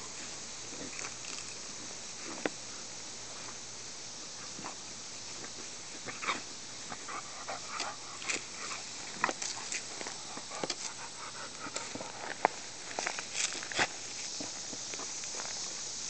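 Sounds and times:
grass rustling: 0.0 - 16.0
dog panting: 6.9 - 8.9, 9.5 - 12.4.

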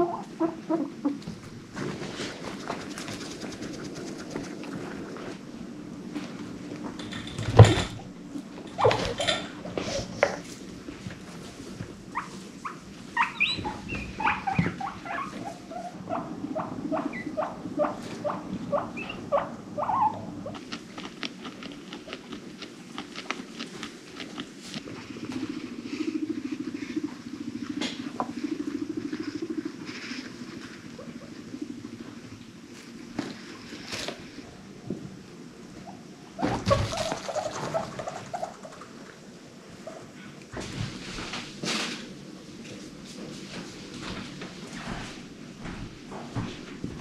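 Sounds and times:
guinea pig squeaks: 12.1 - 22.2, 36.4 - 38.9.

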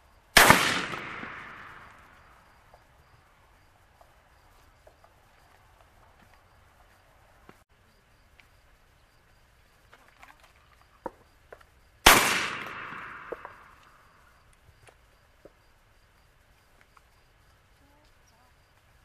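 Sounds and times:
shotgun shot: 0.4 - 2.2, 12.0 - 13.8.

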